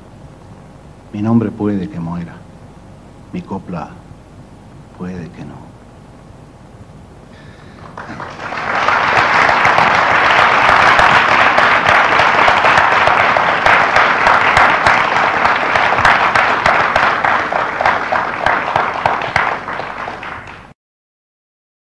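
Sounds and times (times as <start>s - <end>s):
audience applauding: 7.4s - 20.8s.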